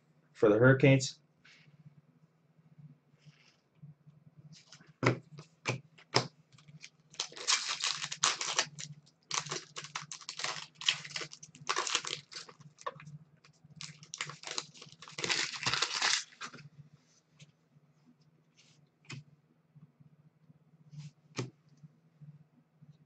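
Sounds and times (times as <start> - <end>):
foil wrapper crinkling and tearing: 6.6 - 13.0, 13.8 - 16.6.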